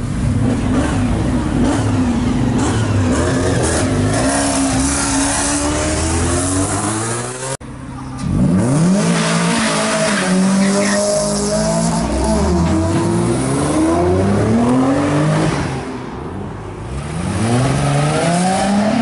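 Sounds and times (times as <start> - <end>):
car engines revving and accelerating: 0.0 - 19.0.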